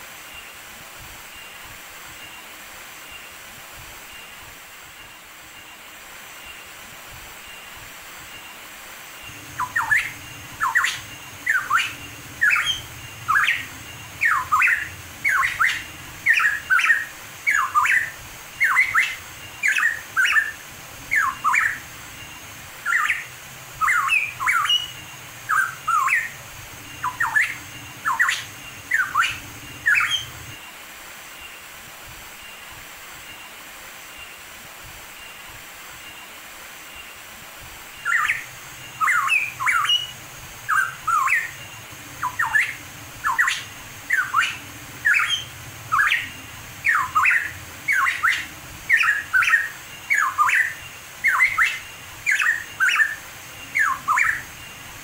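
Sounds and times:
bird singing: 9.2s - 30.7s, 38.0s - 55.0s.

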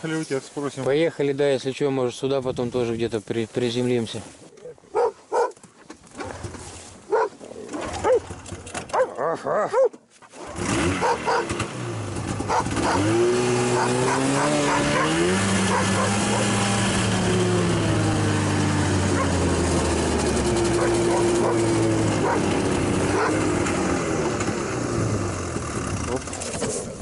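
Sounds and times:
dog barking: 4.9s - 5.6s, 7.1s - 7.4s, 8.0s - 8.2s, 8.9s - 10.0s, 11.0s - 11.6s, 12.5s - 16.6s, 19.1s - 19.4s, 22.2s - 22.5s, 23.1s - 23.4s
snowmobile engine revving: 10.3s - 27.0s.

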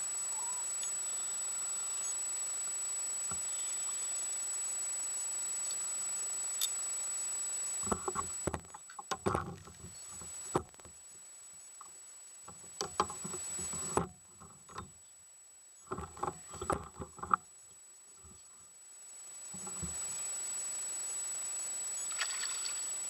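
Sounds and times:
faint high-pitched whine: 0.0s - 23.0s.

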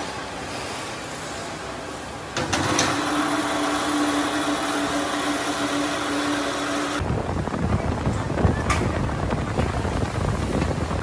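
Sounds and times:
electric chain hoist motor running: 2.4s - 7.0s
low rumbling: 4.9s - 11.0s.

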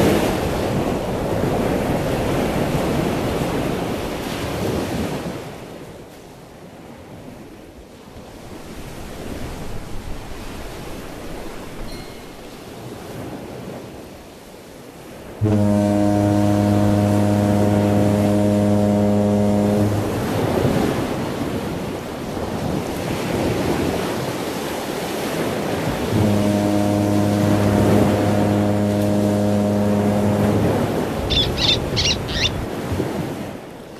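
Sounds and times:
ocean surf: 0.0s - 33.9s
deep foghorn blasts: 15.2s - 24.2s, 25.1s - 33.6s.

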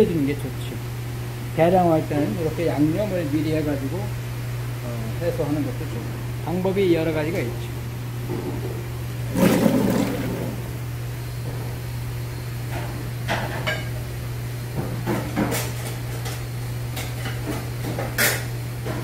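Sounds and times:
kitchen ventilation hum: 0.0s - 19.0s
kitchenware clattering: 9.3s - 10.6s.

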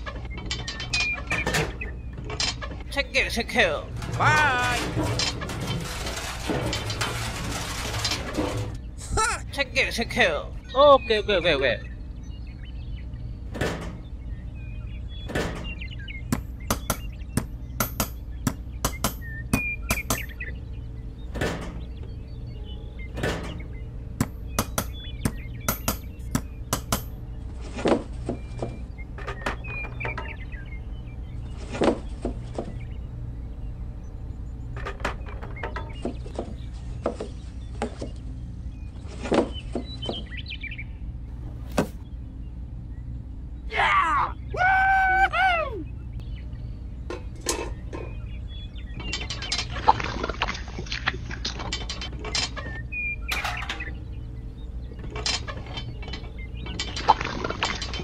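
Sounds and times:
steady low hum: 0.0s - 58.0s
bird chirping: 8.7s - 50.0s, 52.2s - 58.0s.

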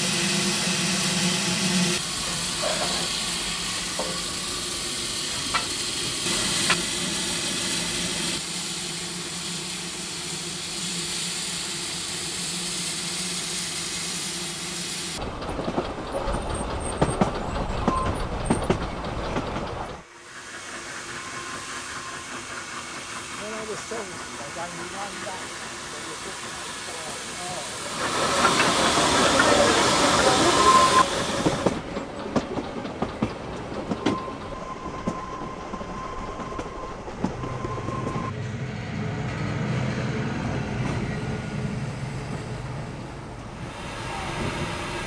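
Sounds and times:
steam locomotive hissing: 0.0s - 38.3s, 41.0s - 45.0s
wheels clicking on track: 15.2s - 38.3s.

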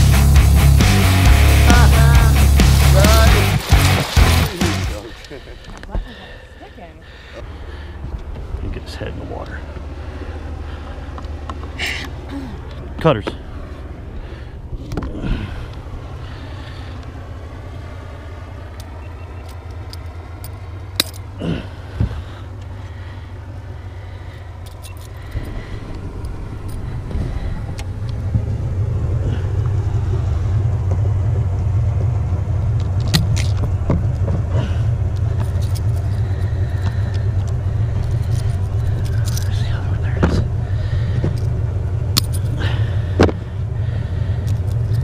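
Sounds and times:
boat engine rumbling: 0.0s - 45.0s.

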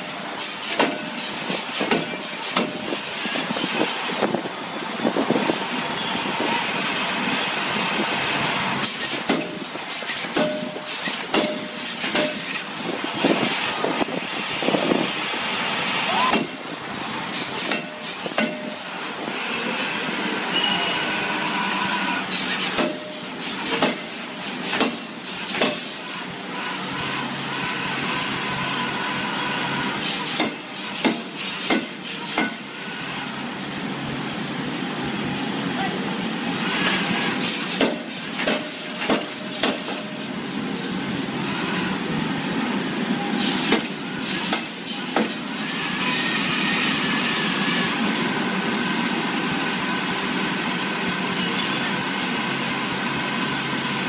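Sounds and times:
machinery running: 0.0s - 54.0s
power hammer striking steel: 0.3s - 3.1s, 8.8s - 13.6s, 16.1s - 19.0s, 22.2s - 26.2s, 30.0s - 32.8s, 37.3s - 40.3s, 43.4s - 46.1s.

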